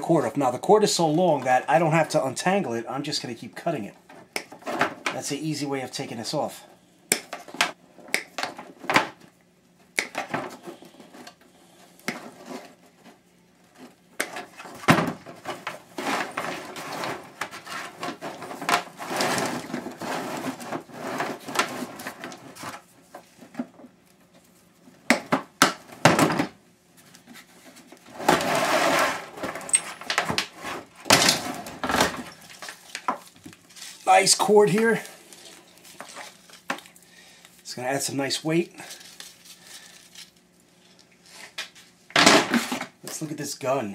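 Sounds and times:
cord rustling and scraping: 0:10.5 - 0:24.7, 0:27.0 - 0:37.6.

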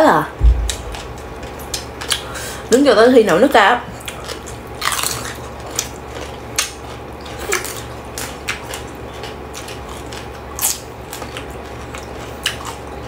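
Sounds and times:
steady low hum: 0:00.2 - 0:04.8
crunchy chewing of cucumber: 0:03.9 - 0:13.0.

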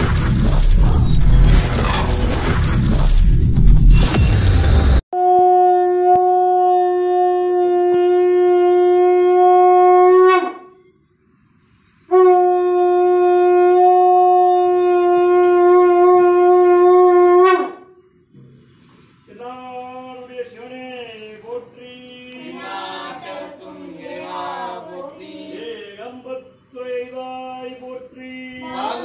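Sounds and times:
conch shell blasts: 0:05.2 - 0:11.0, 0:12.1 - 0:18.3.

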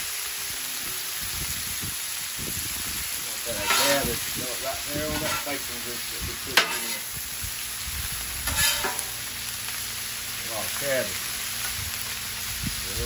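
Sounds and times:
cabbage sizzling on a griddle: 0:00.0 - 0:13.0
metal spatulas scraping griddle: 0:03.4 - 0:04.3, 0:05.0 - 0:05.8, 0:06.5 - 0:07.2, 0:08.4 - 0:09.3
metal clack on griddle: 0:03.5 - 0:04.2, 0:05.0 - 0:05.6, 0:06.5 - 0:07.1, 0:08.4 - 0:09.2.

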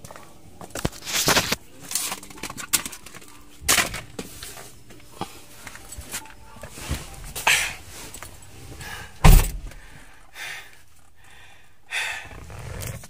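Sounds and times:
rustling and shuffling: 0:00.0 - 0:11.2
car door shutting: 0:09.2 - 0:09.8.

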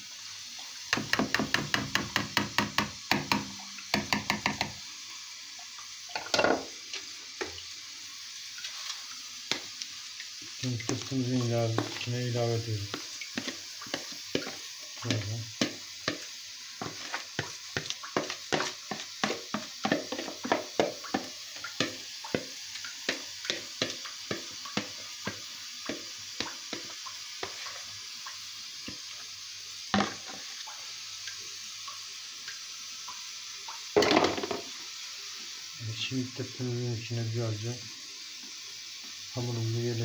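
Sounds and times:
spoon scraping and tapping bowl: 0:12.9 - 0:22.5.

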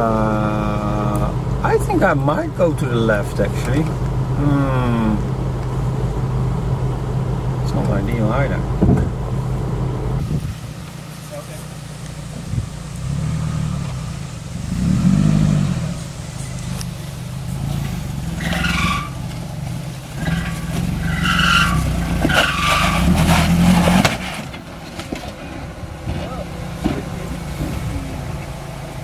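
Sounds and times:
van engine revving under load: 0:00.0 - 0:29.0
tyres squealing on rock: 0:17.7 - 0:19.3, 0:20.2 - 0:24.5.

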